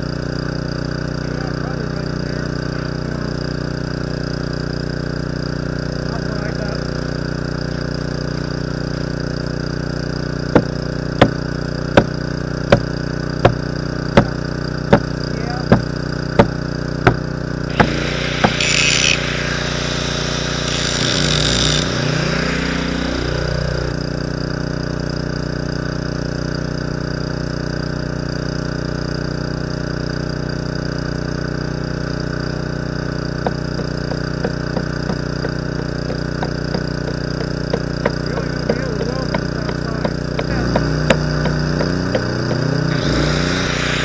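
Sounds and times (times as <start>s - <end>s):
diesel engine running: 0.0s - 44.0s
arc welding crackle: 17.7s - 24.0s, 43.0s - 44.0s.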